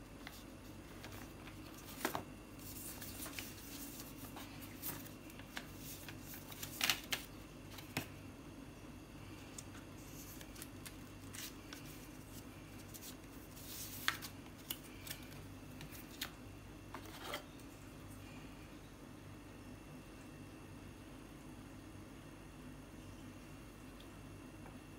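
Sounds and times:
faint steady hum: 0.0s - 24.9s
paper and cardboard rustling: 0.2s - 8.1s, 10.0s - 16.3s.

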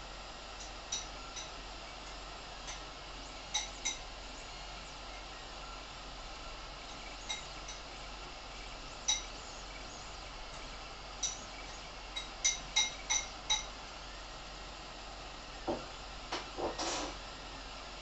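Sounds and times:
printer fans and motors humming: 0.0s - 18.0s.

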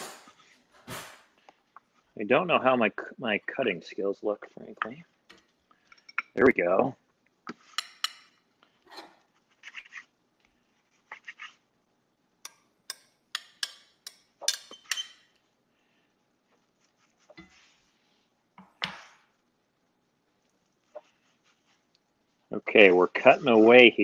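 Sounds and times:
utensils scraping a skillet: 7.6s - 10.1s, 12.9s - 15.4s, 17.1s - 18.0s
metal utensils clinking: 7.7s - 9.2s, 12.9s - 15.3s.

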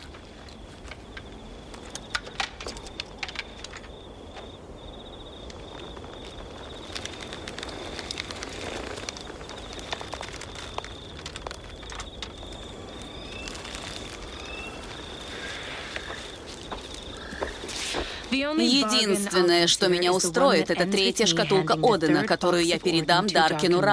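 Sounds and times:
small clicks and rustles: 0.0s - 4.6s, 5.4s - 18.4s
insects chirping: 0.0s - 23.9s.

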